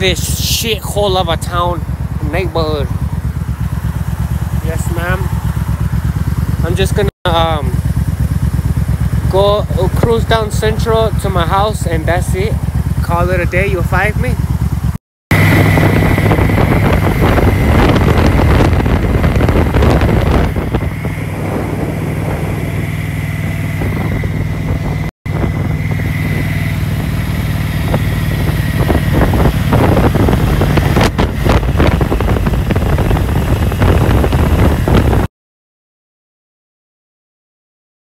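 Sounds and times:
motorcycle engine running: 0:00.0 - 0:35.3
wind buffeting microphone: 0:15.3 - 0:35.3.

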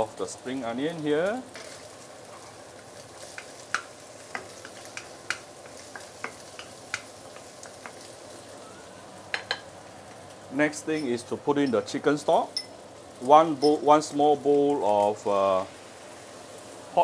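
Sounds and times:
egg sizzling in oil: 0:00.0 - 0:17.0
wooden spatula tapping a pan: 0:03.3 - 0:08.1, 0:09.3 - 0:09.7.

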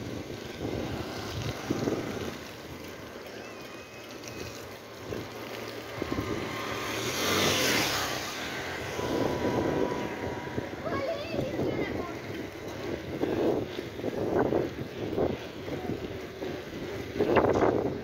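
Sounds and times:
wind buffeting microphone: 0:00.0 - 0:03.3, 0:04.1 - 0:18.0
tyre hiss on wet road: 0:00.1 - 0:11.4.

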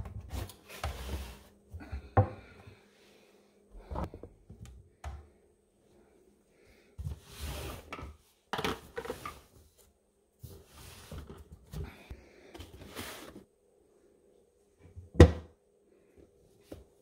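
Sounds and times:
cardboard boxes scraping on shelves: 0:00.3 - 0:01.6, 0:07.0 - 0:07.9, 0:12.8 - 0:13.5.

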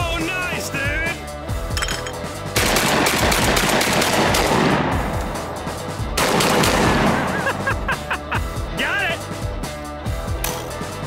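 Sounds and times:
background music: 0:00.0 - 0:11.0
shotgun blasts: 0:06.2 - 0:07.3.

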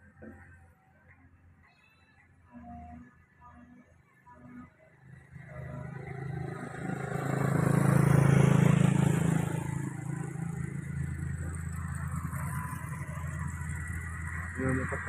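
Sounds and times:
excavator diesel engine under load: 0:05.3 - 0:15.0.

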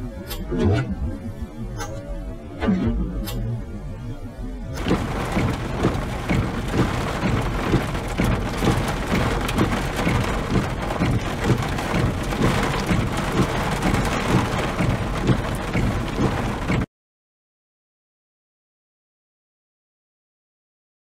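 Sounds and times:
heavy rain on car roof: 0:04.8 - 0:16.9.

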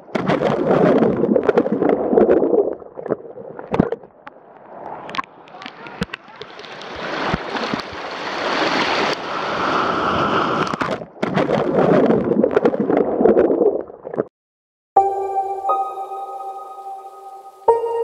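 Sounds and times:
underwater bubbling churning: 0:00.0 - 0:14.3
surf breaking over rocks: 0:05.1 - 0:11.0
ambient music: 0:15.0 - 0:18.0.

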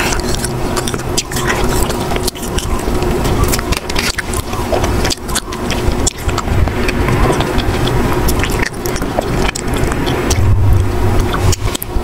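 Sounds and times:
chewing crunchy ice cream bar: 0:00.0 - 0:12.0
low rumble: 0:00.0 - 0:12.0.

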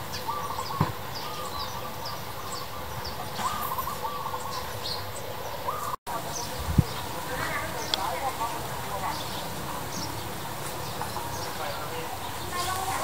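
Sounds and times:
birds chattering rapidly: 0:00.0 - 0:13.0
birds chirping: 0:00.0 - 0:13.0.

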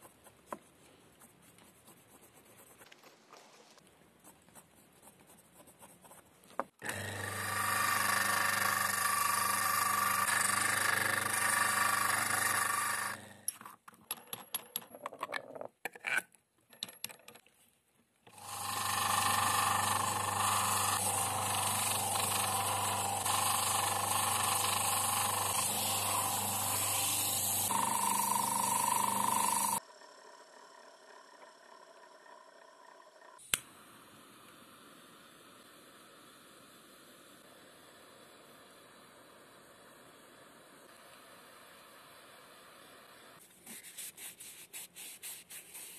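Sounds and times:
grinder motor whining: 0:06.8 - 0:13.5, 0:18.3 - 0:33.3.

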